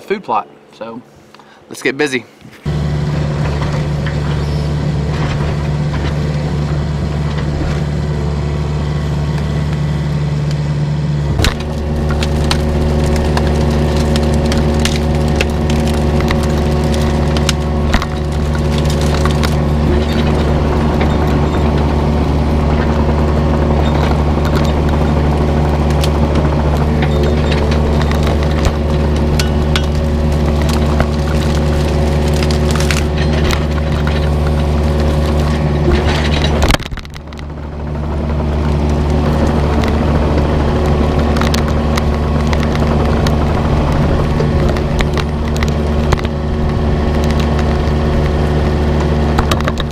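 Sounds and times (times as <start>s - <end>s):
excavator diesel engine running: 0.0s - 49.9s
branches cracking and snapping: 11.4s - 49.9s.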